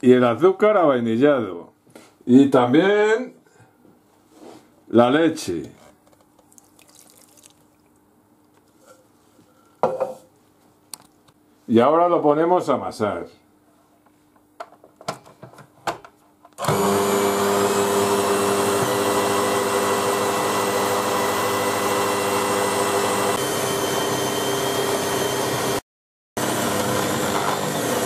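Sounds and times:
stand mixer motor humming: 16.6s - 25.8s, 26.4s - 28.0s.

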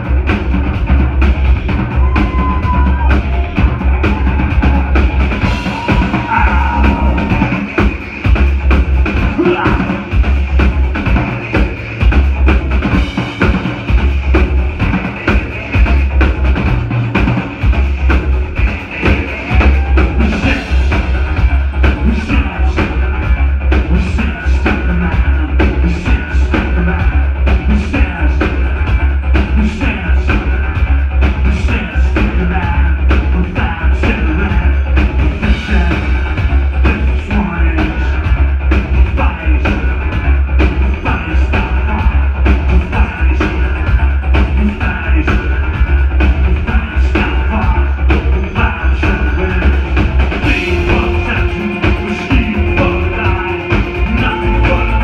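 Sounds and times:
booming synth bass: 0.0s - 55.0s
driving drum beat: 0.0s - 55.0s
industrial band playing live: 0.0s - 55.0s.

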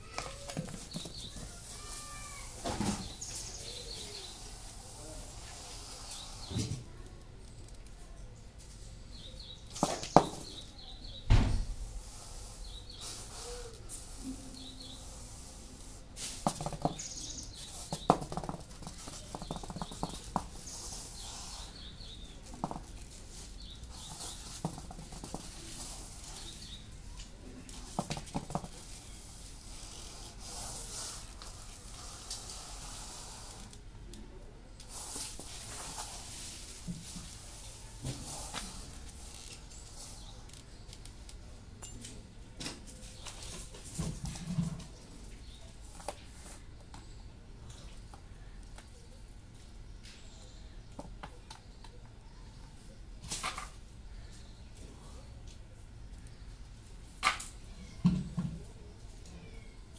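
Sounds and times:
sharp knocks and taps: 0.1s - 1.5s, 9.8s - 10.6s, 16.4s - 20.6s, 22.4s - 23.0s, 24.0s - 25.7s, 27.8s - 28.9s
high bird chirps: 16.8s - 18.6s.

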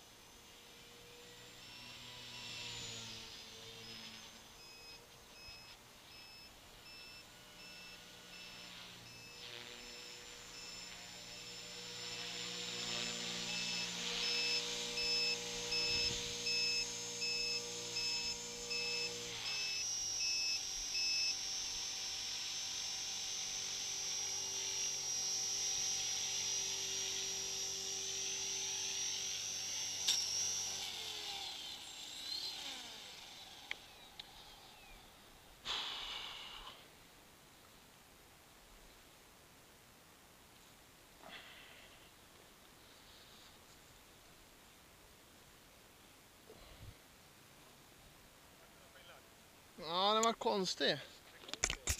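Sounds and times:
rc helicopter motor whine: 0.0s - 36.9s
high beeping: 4.6s - 10.9s, 13.5s - 21.4s.

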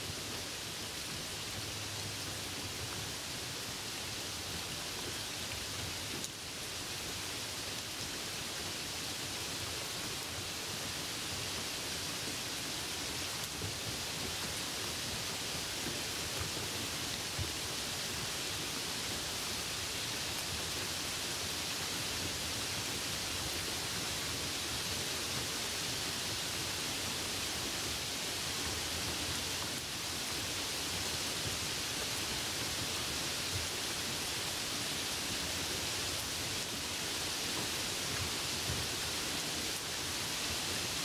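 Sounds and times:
rain falling on a puddle: 0.0s - 41.0s.

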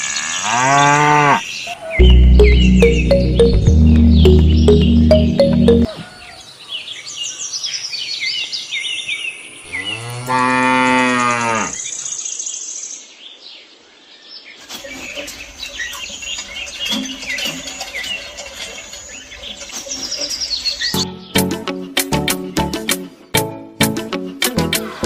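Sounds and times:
birds chirping: 0.0s - 23.3s
cow mooing: 0.2s - 1.4s, 9.8s - 11.8s.

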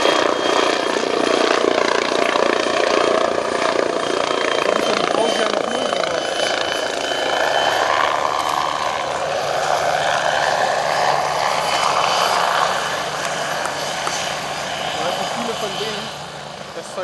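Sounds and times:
helicopter flying past: 0.0s - 17.0s
faint high whine: 3.6s - 17.0s.

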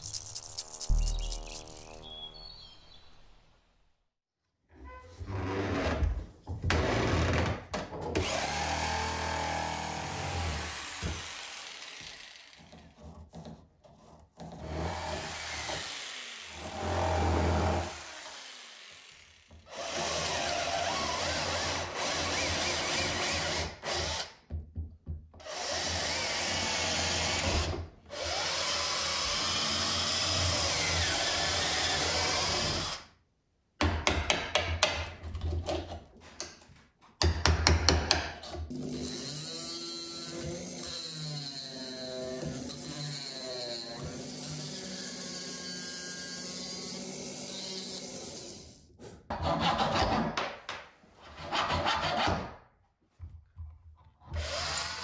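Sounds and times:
electric drill boring into wood: 8.2s - 12.7s, 14.7s - 24.3s, 25.5s - 33.0s, 54.4s - 55.0s.

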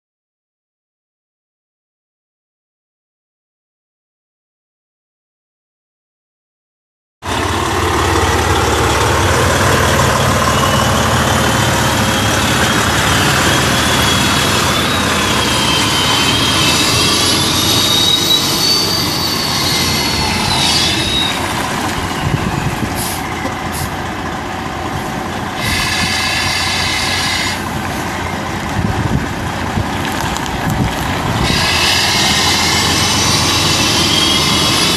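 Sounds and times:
diesel truck engine idling: 7.3s - 18.0s, 20.3s - 34.9s
high wavering whine: 7.3s - 23.4s.

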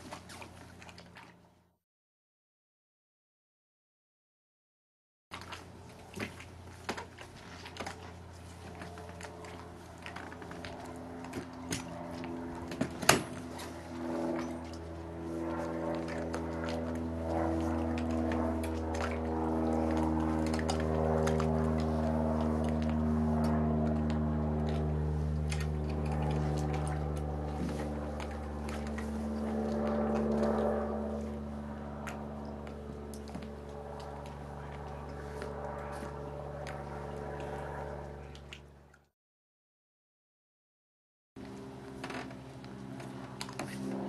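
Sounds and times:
low hum: 5.3s - 39.1s, 41.4s - 44.0s
slow ambient chords: 8.7s - 38.4s.

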